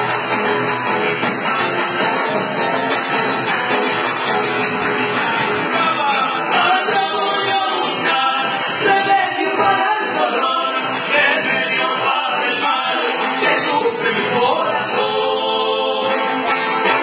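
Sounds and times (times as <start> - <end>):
acoustic guitar strumming: 0.0 - 17.0
person singing: 4.8 - 16.3.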